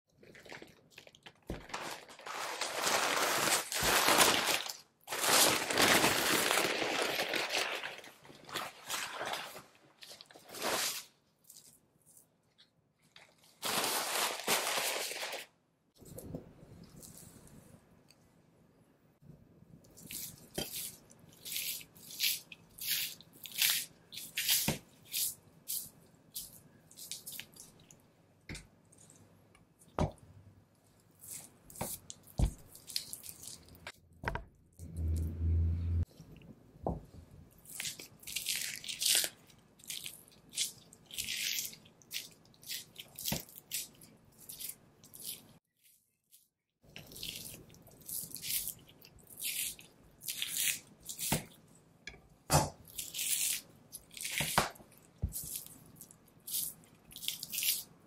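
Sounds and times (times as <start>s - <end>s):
fat peeling and tearing from meat: 37.6s - 45.6s, 47.0s - 51.6s, 52.8s - 57.9s.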